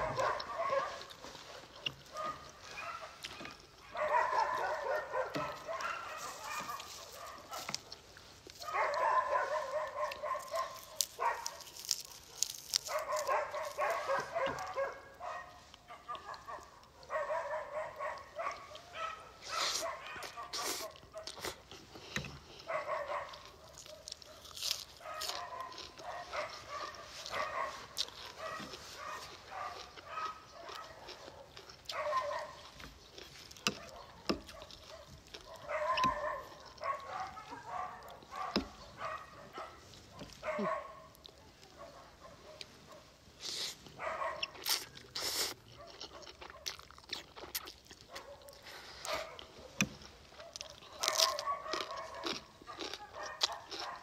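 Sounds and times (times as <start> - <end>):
chewing and slurping noodles: 0.0 - 15.0, 18.1 - 41.4, 43.4 - 54.0
crunching raw vegetables: 0.0 - 54.0.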